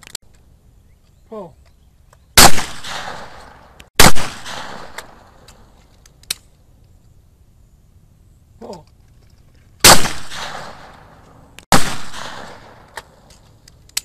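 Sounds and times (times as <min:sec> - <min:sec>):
shotgun shots echoing: 0:02.4 - 0:05.5, 0:09.8 - 0:13.0
small clicks: 0:12.9 - 0:14.0.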